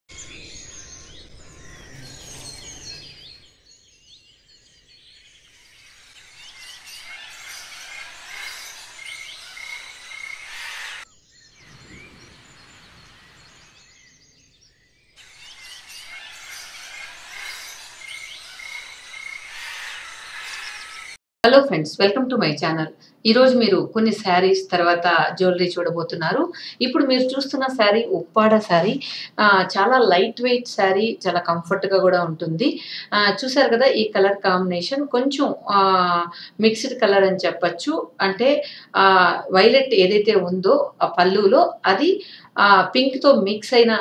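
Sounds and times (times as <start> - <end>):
birds chirping and singing: 0.1 - 21.2.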